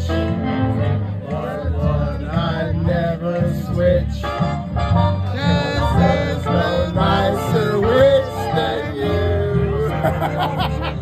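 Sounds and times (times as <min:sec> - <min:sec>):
country backing music: 0:00.0 - 0:11.0
man singing into microphone: 0:05.4 - 0:10.2.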